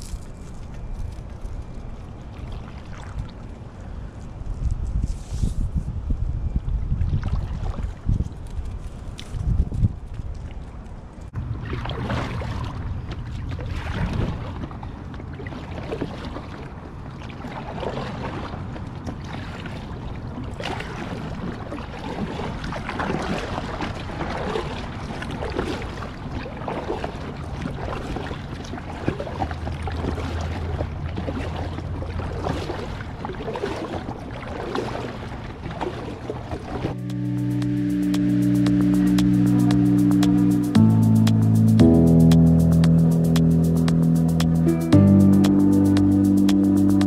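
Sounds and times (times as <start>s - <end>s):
kayak paddle splashing: 2.1s - 4.0s, 7.1s - 8.1s, 11.3s - 37.0s
wind on microphone: 4.3s - 11.6s, 13.6s - 14.7s.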